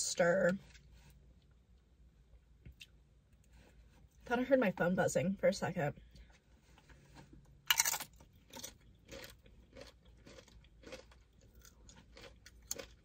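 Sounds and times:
chewing: 6.2s - 13.0s
crunchy bite: 7.7s - 13.0s.

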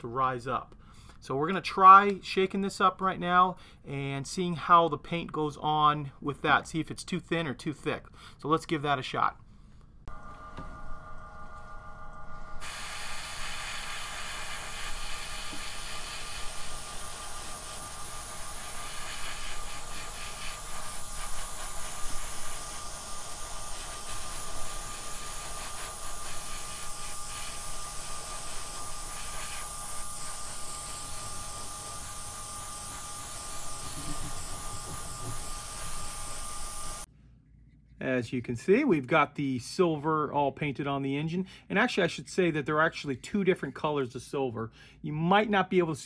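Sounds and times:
airbrush hissing: 12.6s - 37.1s.

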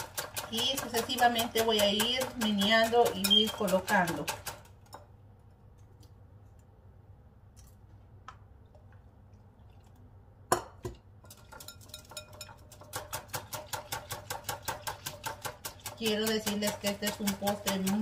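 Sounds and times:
whisk clinking in glass bowl: 0.0s - 4.6s, 11.2s - 18.0s.

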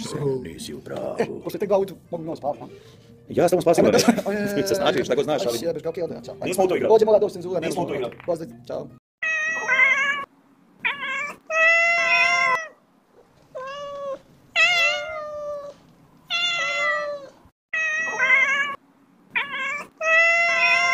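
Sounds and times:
cat meowing: 9.2s - 12.8s, 13.5s - 20.9s.

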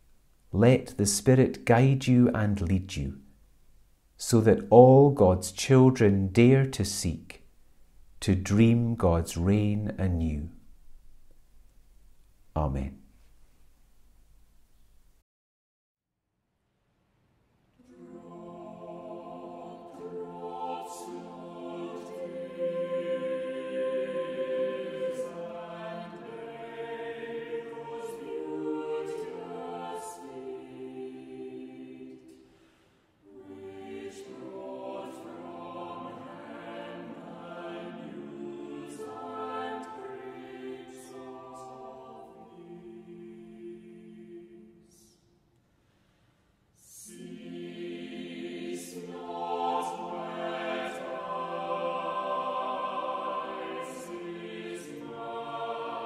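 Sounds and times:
choir singing a hymn: 17.8s - 45.2s, 46.8s - 56.0s.

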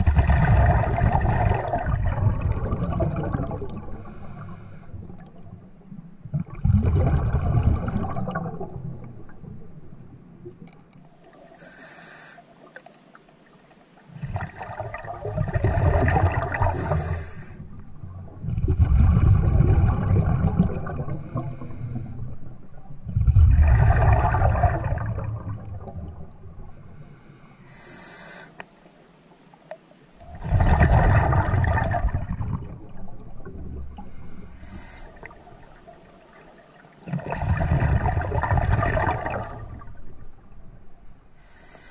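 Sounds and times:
bubbling exhalations underwater: 0.0s - 4.0s, 6.3s - 9.4s, 14.2s - 17.2s, 18.3s - 21.6s, 23.1s - 26.2s, 30.2s - 34.0s, 37.0s - 40.0s
hissing regulator inhale: 3.9s - 5.0s, 11.6s - 12.5s, 16.6s - 17.6s, 21.1s - 22.2s, 26.7s - 28.6s, 33.9s - 35.3s, 41.2s - 41.9s.

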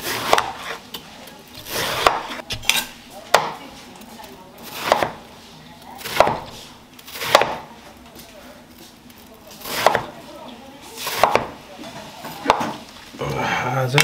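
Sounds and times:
knife slicing watermelon: 0.0s - 0.9s, 1.6s - 3.6s, 4.6s - 5.3s, 6.0s - 7.7s, 9.6s - 10.2s, 11.0s - 11.6s, 12.3s - 12.8s.

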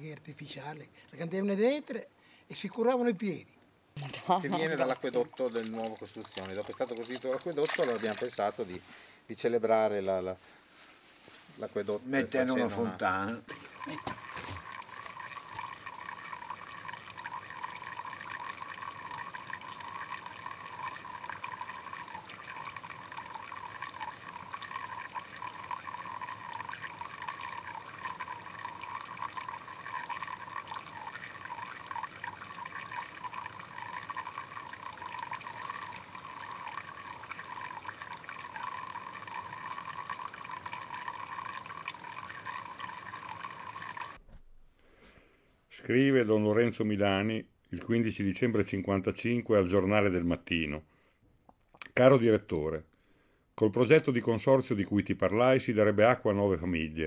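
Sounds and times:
water trickling and splashing: 4.0s - 8.9s, 12.4s - 44.2s.

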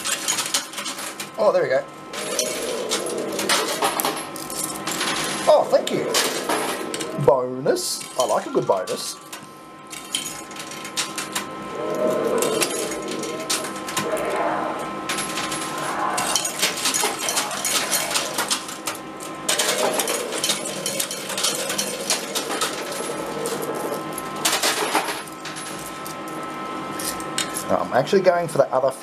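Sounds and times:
coins clattering in machine: 0.0s - 1.3s, 2.1s - 7.2s, 7.9s - 11.5s, 15.1s - 26.2s.

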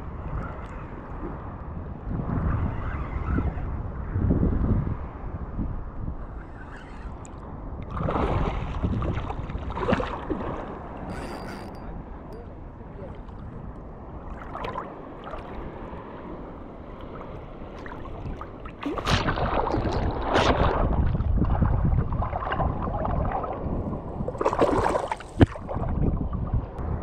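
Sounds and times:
water lapping: 6.2s - 26.0s
fish splashing and thrashing: 24.4s - 25.8s.

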